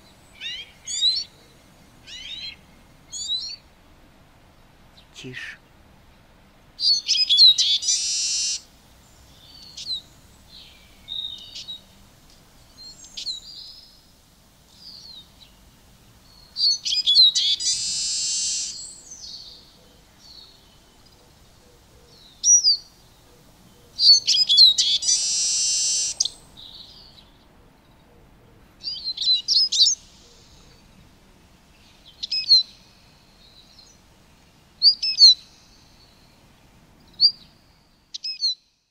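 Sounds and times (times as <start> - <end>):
siskin twittering song: 0.0 - 1.3, 2.1 - 3.6, 6.8 - 11.9, 16.2 - 21.2, 24.0 - 27.4, 28.8 - 31.0, 31.8 - 34.0, 34.8 - 36.4, 37.1 - 38.8.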